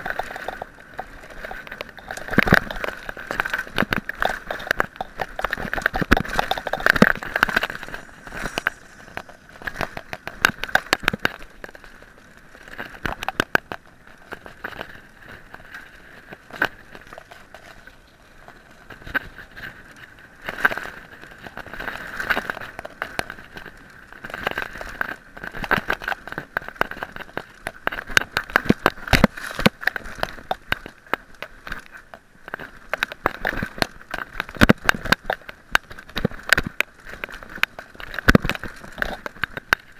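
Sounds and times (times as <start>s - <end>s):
tyres crunching on gravel: 0.0s - 15.6s
bike and camera mount rattling: 0.0s - 39.9s.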